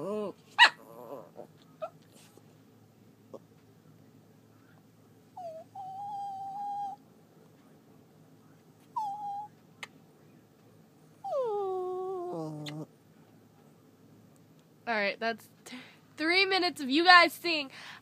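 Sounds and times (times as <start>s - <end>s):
small dog whining: 0.0s - 2.0s, 5.4s - 7.0s, 8.9s - 9.5s, 11.2s - 12.9s.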